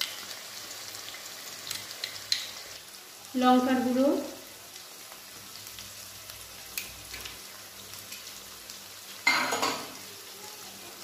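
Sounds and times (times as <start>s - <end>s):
oil and onions sizzling: 0.0s - 11.0s.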